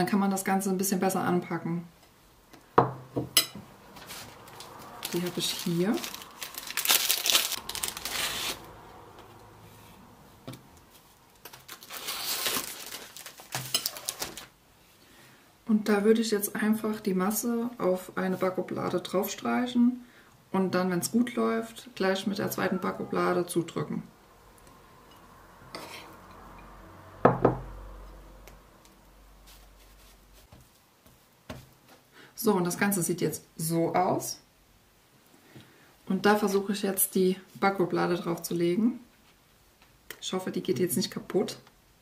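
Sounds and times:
wafer box and wrapper rustling: 4.0 - 8.7, 11.4 - 14.5.

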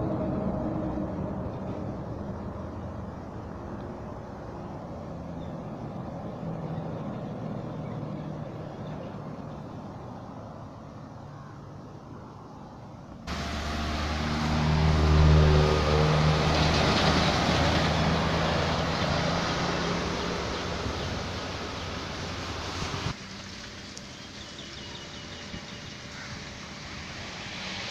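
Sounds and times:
heavy truck passing: 0.0 - 9.7, 13.3 - 25.1
lorry engine running: 13.3 - 23.2.

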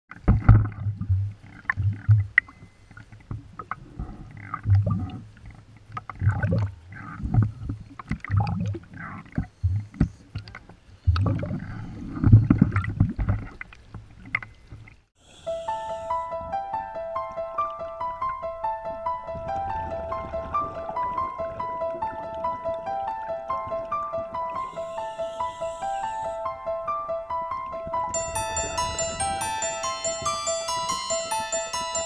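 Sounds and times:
deep thumps and gurgling splashes: 0.1 - 14.9, 19.4 - 22.8
waves sloshing against camera: 0.1 - 17.3, 19.1 - 26.6.

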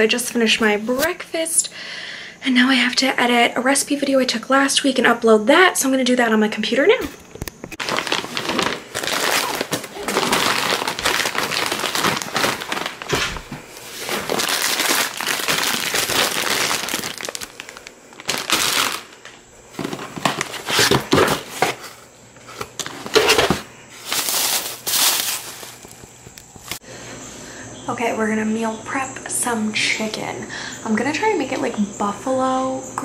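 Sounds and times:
crinkling and rustling: 7.3 - 26.8.

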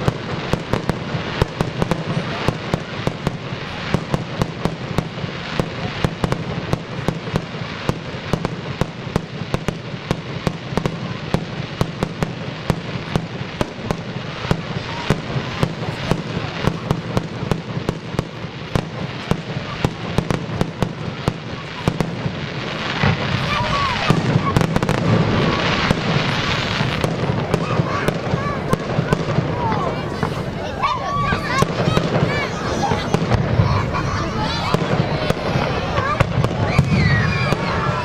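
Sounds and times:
fireworks bangs and crackles: 0.0 - 38.0.

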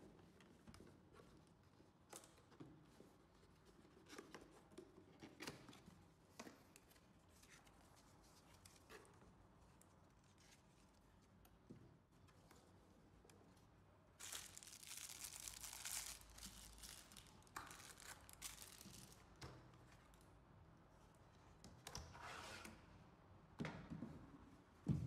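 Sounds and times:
packaging rustling and crinkling: 14.2 - 19.4.

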